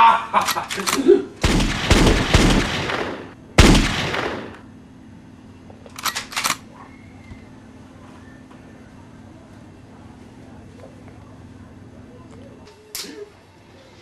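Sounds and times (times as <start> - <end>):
gunshots: 1.4 - 4.6.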